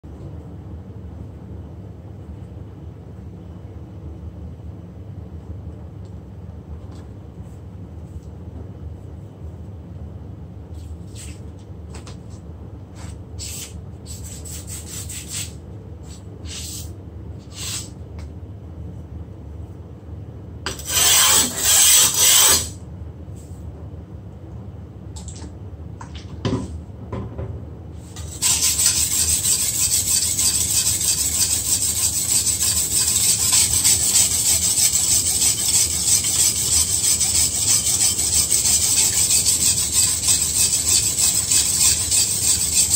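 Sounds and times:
blade scraping on whetstone: 20.7s - 22.7s, 28.2s - 42.9s.

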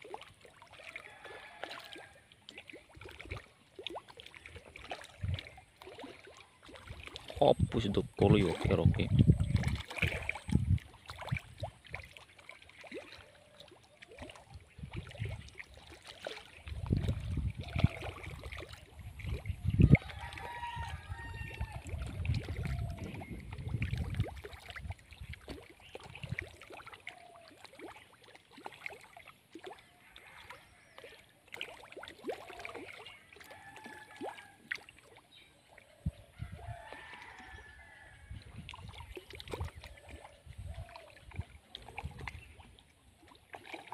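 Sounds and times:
low rumble on microphone: 7.4s - 11.6s, 16.7s - 18.0s, 19.0s - 24.4s.

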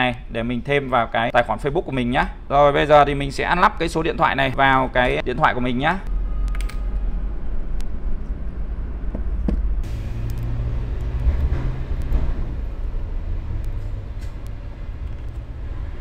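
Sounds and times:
steady low rumble: 6.0s - 16.0s.

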